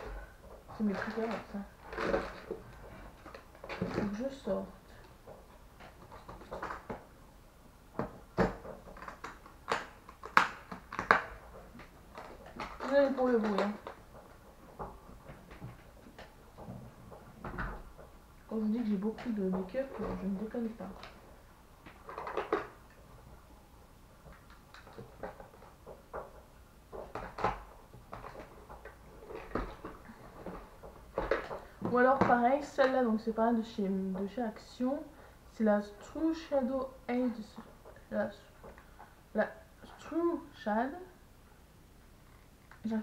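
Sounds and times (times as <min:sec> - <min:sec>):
rustling: 0:00.0 - 0:07.2
makeup cases clacking together: 0:00.8 - 0:04.2, 0:08.0 - 0:18.0, 0:21.9 - 0:22.8, 0:24.3 - 0:33.0.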